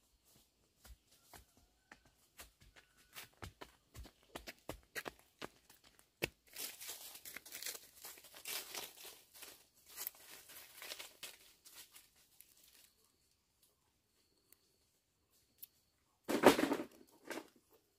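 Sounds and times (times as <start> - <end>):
footsteps crunching on dry leaves: 6.2 - 13.0
leaves and brush rustling: 6.4 - 13.7.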